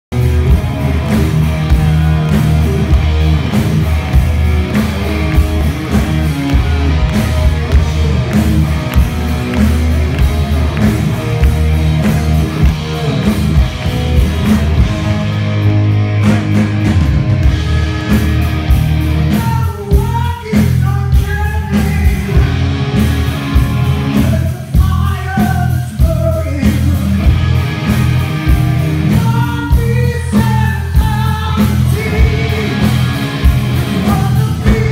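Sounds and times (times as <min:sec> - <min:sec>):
bass guitar: 0:00.0 - 0:34.9
drums: 0:00.0 - 0:34.9
distorted electric guitars: 0:00.1 - 0:34.9
man singing: 0:01.6 - 0:02.7, 0:19.3 - 0:22.6, 0:24.0 - 0:27.4, 0:29.1 - 0:33.3, 0:33.9 - 0:34.9.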